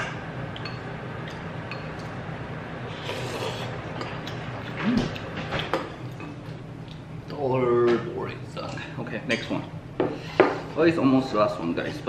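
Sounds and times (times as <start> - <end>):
low steady hum: 0.0 - 12.0.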